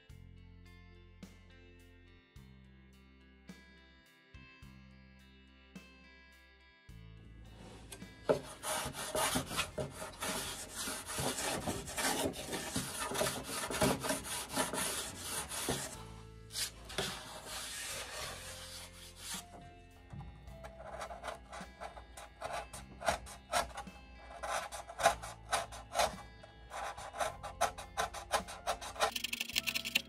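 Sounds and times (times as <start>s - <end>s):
background music: 0.0s - 30.0s
wood being sanded by hand: 7.7s - 19.6s, 20.6s - 29.1s.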